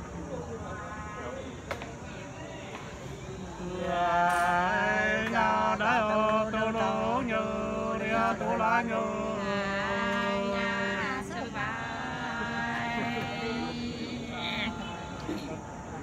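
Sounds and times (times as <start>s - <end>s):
men singing folk song: 3.6s - 15.8s.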